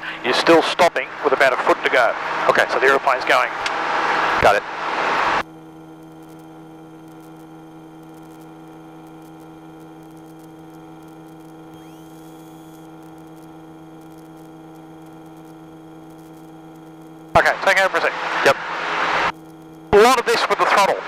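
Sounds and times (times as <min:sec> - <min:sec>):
steady electrical hum: 0:00.0 - 0:21.0
faint rising whine: 0:00.2 - 0:21.0.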